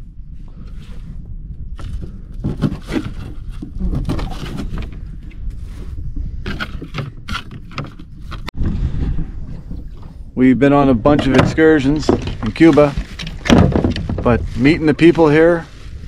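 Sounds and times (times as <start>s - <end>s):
steady low rumble: 0.0s - 2.4s
knocks and scrapes in boat: 1.8s - 10.2s, 11.0s - 16.0s.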